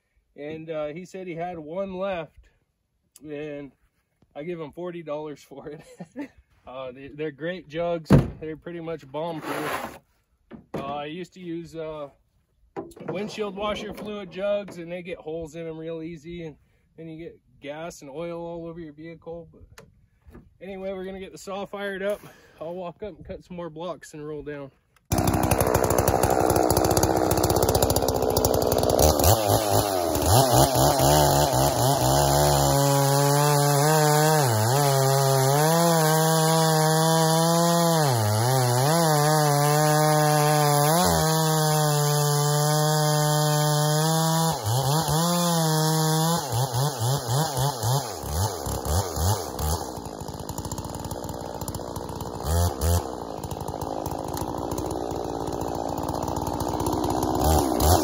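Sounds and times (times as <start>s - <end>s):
chainsaw cutting through log: 9.3s - 10.0s, 25.1s - 58.0s.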